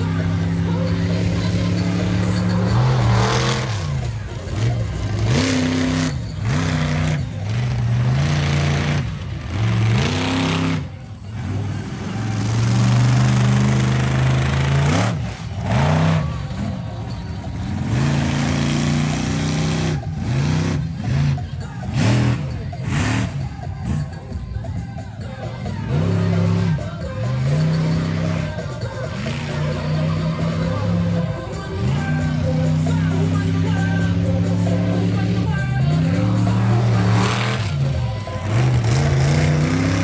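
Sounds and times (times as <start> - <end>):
monster truck engine revving: 0.0 - 40.0.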